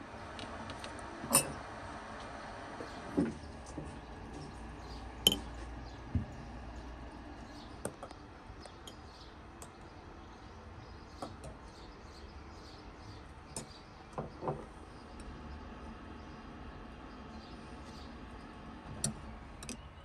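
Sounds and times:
metal spoon clinking on glass: 5.3 - 5.5.

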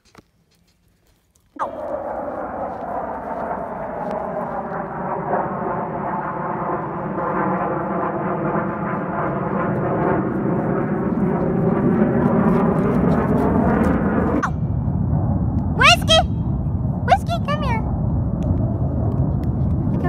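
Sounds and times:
engine droning: 1.6 - 17.0.

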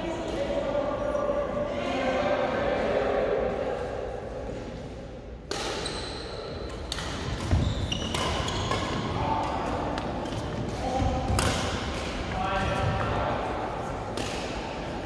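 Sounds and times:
badminton rackets hitting shuttlecock: 5.4 - 13.0, 13.9 - 15.0.

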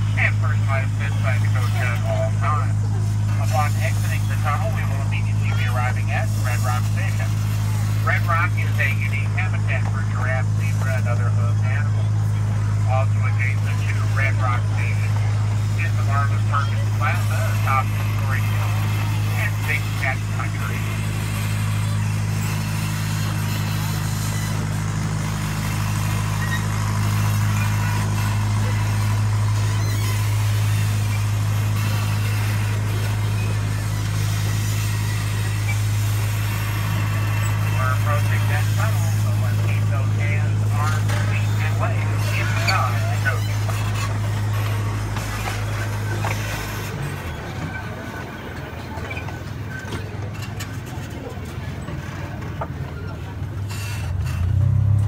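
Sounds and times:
miniature train droning: 0.0 - 55.0.

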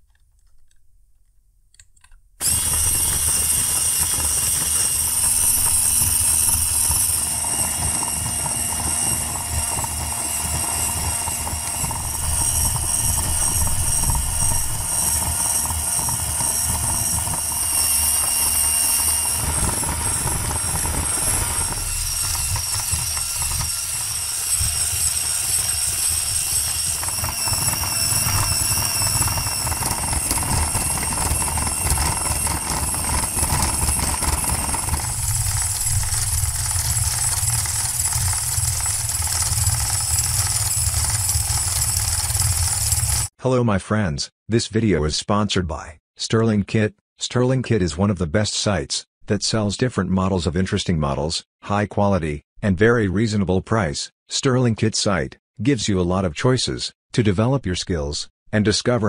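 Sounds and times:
low hum: 2.4 - 43.2
model turbofan whirring: 2.4 - 43.3.

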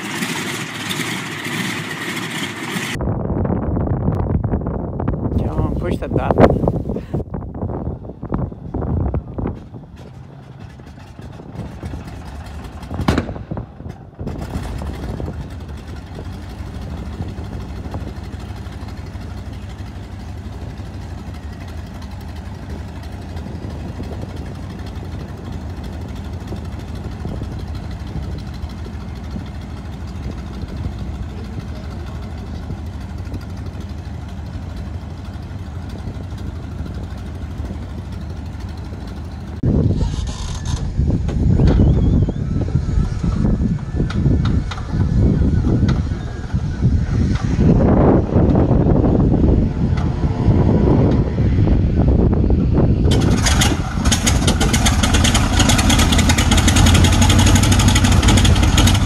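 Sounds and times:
radial engine idling: 14.6 - 39.6, 53.2 - 59.0.

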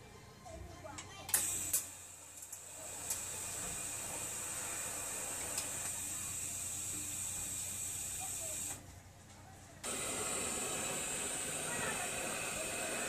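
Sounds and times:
welding arc hissing: 1.3 - 8.8, 9.8 - 13.0.

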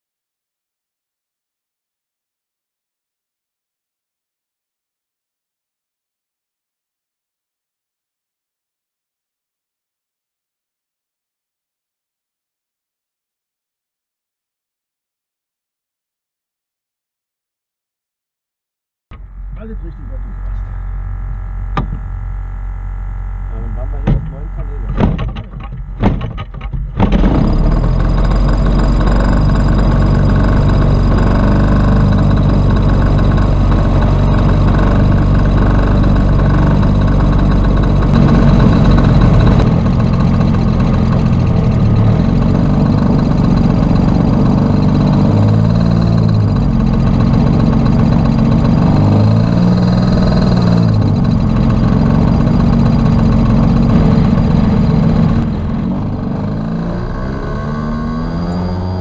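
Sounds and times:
model airplane engine running: 19.2 - 59.0.

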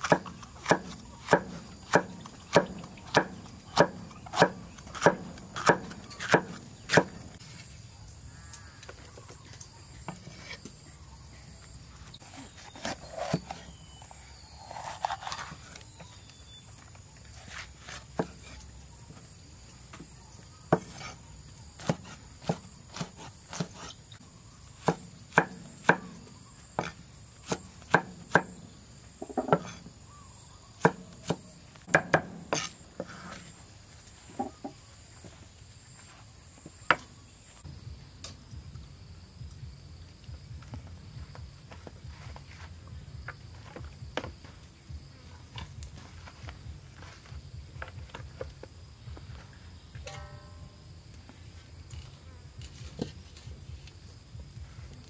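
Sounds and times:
knife chopping on wooden board: 0.0 - 7.2, 17.5 - 18.6, 20.7 - 21.2, 21.8 - 24.0, 24.8 - 26.2, 26.8 - 28.6, 29.2 - 29.9, 30.8 - 33.4.

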